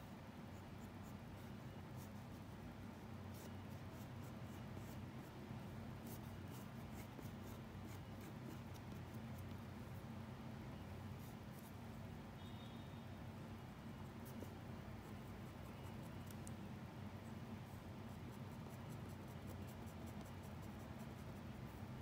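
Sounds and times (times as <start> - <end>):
faint low hum: 0.0 - 22.0
pencil scratching on paper: 6.0 - 9.5, 18.1 - 21.6.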